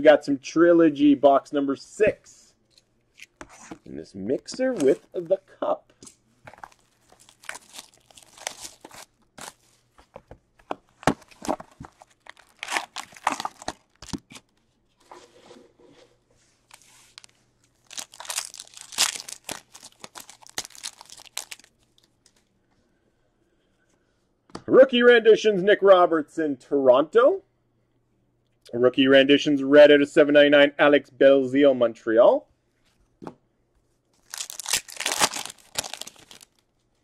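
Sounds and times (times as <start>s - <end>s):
foil wrapper tearing and crinkling: 6.5s - 9.6s, 11.4s - 14.4s, 16.7s - 21.9s, 34.2s - 36.6s.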